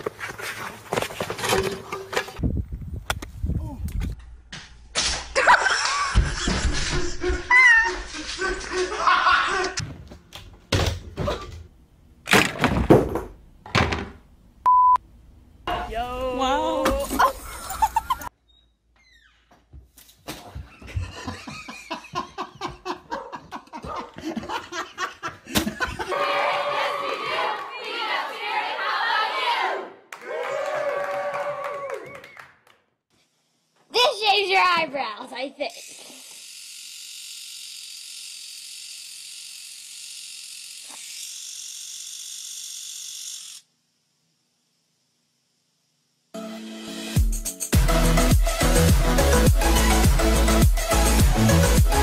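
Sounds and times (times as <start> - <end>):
hearty laughter: 5.4 - 9.8, 17.2 - 18.3, 20.6 - 26.2
eyebrow trimmer buzzing: 35.6 - 43.8.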